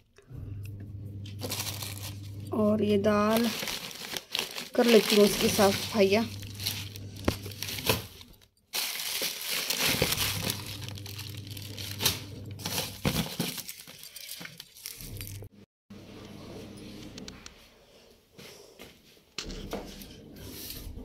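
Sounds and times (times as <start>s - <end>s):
plastic bag rustling: 1.3s - 15.5s
newspaper crinkling: 1.4s - 2.3s, 3.0s - 15.4s.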